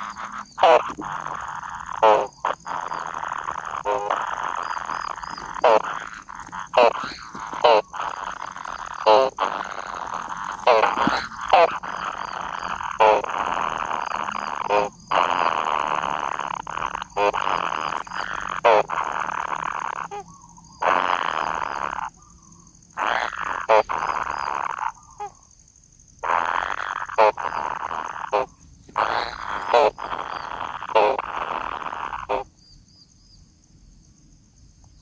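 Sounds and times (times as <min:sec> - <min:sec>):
nestlings rasping buzzes: 0:00.0 - 0:25.3, 0:26.2 - 0:32.5
squeaky bird calls: 0:26.5 - 0:32.4.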